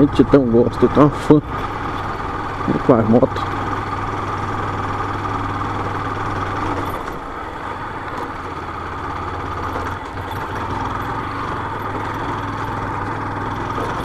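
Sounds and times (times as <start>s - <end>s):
motorcycle engine running: 0.0s - 14.0s.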